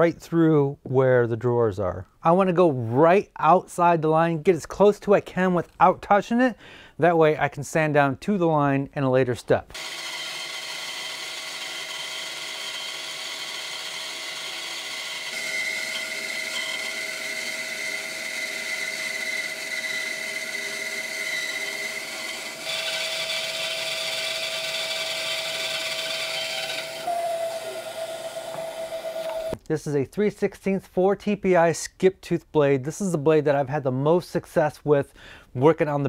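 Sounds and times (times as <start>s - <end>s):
bandsaw cutting wood: 9.7s - 29.6s.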